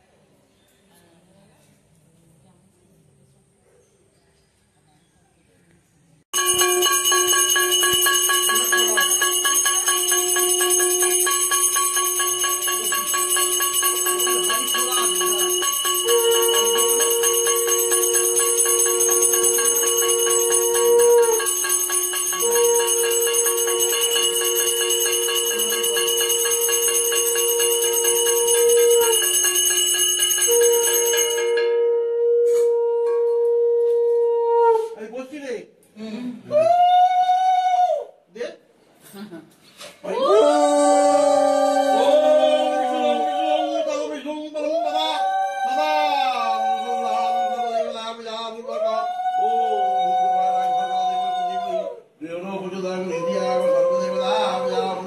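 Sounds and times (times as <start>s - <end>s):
hand bell ringing: 6.4s - 31.9s
conch shell blasts: 6.4s - 34.8s.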